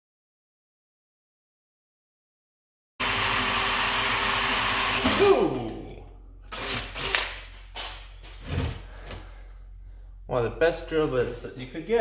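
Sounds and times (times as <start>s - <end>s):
cordless drill boring through steel: 3.0s - 5.5s, 6.5s - 7.3s.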